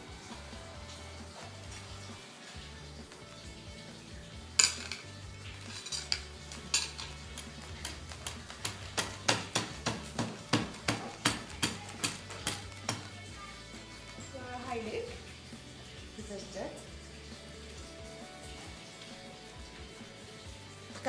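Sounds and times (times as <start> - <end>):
metal rods and beads clinking: 4.6 - 9.2.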